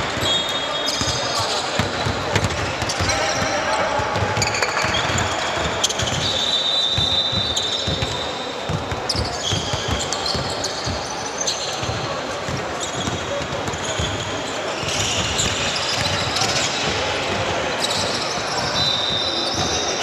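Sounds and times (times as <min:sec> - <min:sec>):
basketball bouncing: 0:01.8 - 0:03.4, 0:07.8 - 0:10.6.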